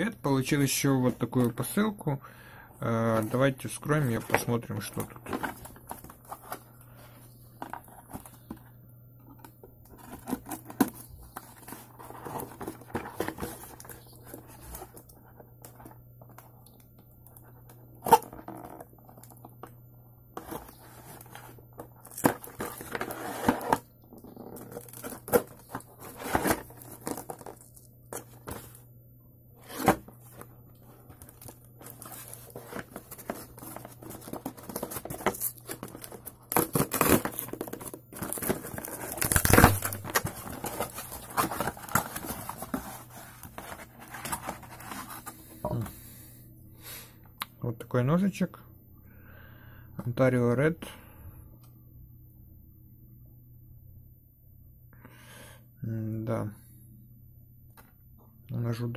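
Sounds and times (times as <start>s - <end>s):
cardboard flaps tearing and crinkling: 31.4s - 45.3s
packing tape ripped away: 38.3s - 42.2s.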